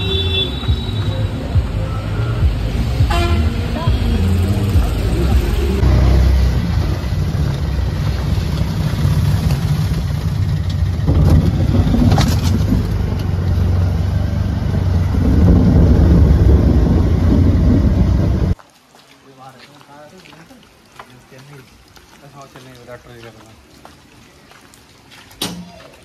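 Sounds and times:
auto-rickshaw engine running: 0.0s - 18.6s.

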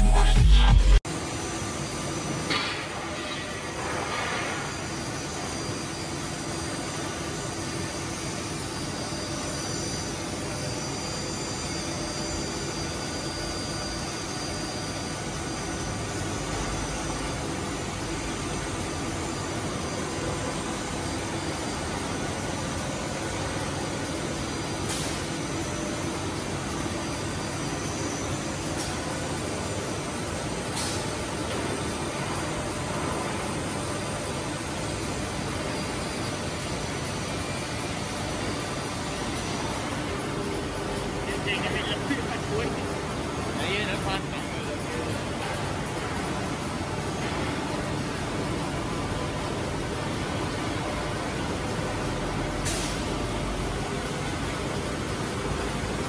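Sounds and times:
steady high tone: 0.0s - 1.0s.

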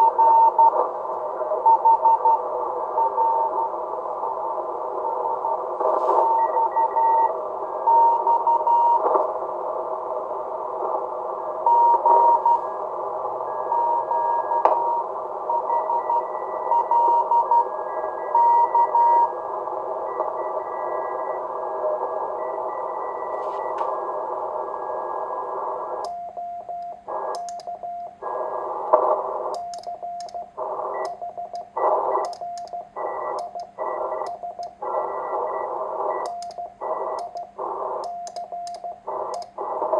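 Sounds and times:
radio band hiss: 0.0s - 26.0s, 26.9s - 39.9s
faint neighbouring radio signals: 0.0s - 39.9s
low sidetone: 0.0s - 39.9s
sharp switching clicks: 26.8s - 27.7s, 29.5s - 30.4s, 31.0s - 32.8s, 33.4s - 34.8s, 36.2s - 36.6s, 37.2s - 39.6s.

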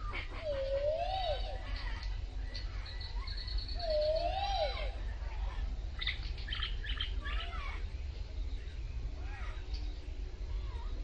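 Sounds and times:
birds ticking calls: 0.0s - 11.0s
low wavering bird whistle: 2.5s - 5.0s.

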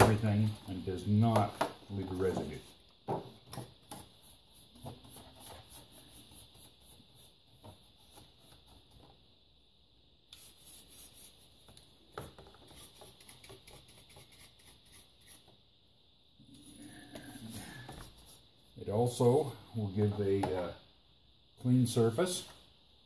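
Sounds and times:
paintbrush scrubbing circuit board: 10.3s - 11.6s, 12.6s - 15.5s.

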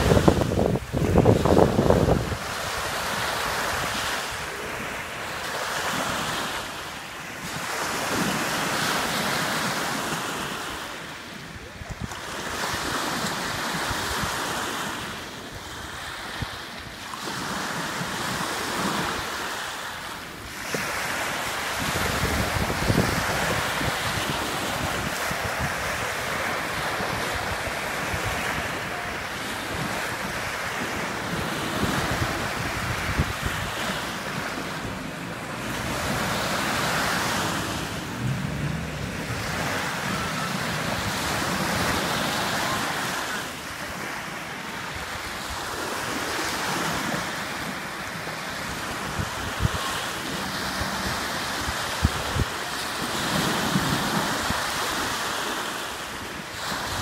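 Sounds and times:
wind buffeting microphone: 0.0s - 4.9s, 20.4s - 44.1s, 48.5s - 55.2s
small waves breaking on beach: 0.0s - 57.0s.

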